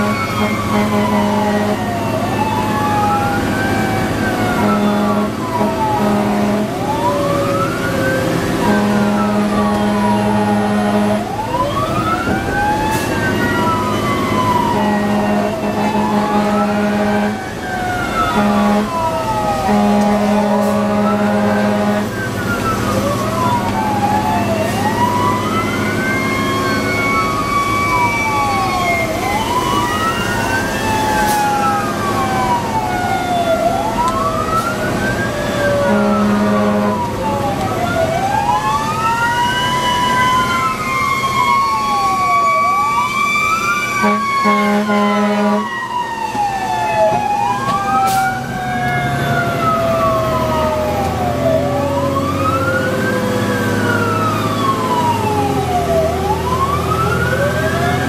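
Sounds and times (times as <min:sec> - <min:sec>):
horn blasts: 0:00.0 - 0:01.9, 0:04.6 - 0:06.9, 0:08.6 - 0:11.4, 0:14.7 - 0:17.4, 0:18.3 - 0:22.2, 0:35.8 - 0:37.1, 0:44.0 - 0:45.7
fire engine siren wailing: 0:00.0 - 0:58.0.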